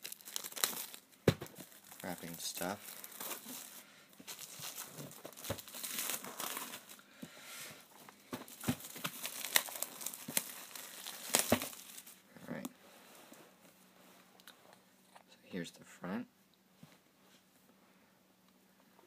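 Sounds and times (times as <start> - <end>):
plastic shrink-wrap crinkling: 0.0 - 7.0, 8.5 - 12.2.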